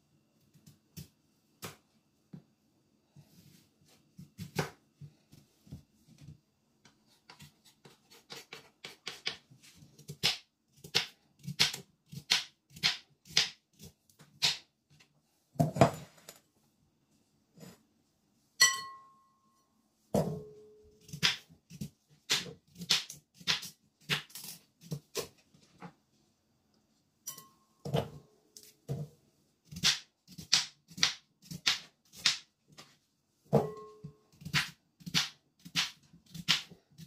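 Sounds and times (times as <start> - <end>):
knife clink: 18.6 - 19.3, 27.3 - 27.6.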